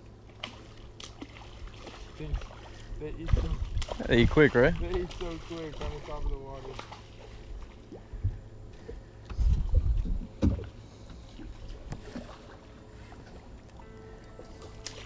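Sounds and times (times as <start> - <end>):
thumps and knocks on boat deck: 10.0 - 10.7.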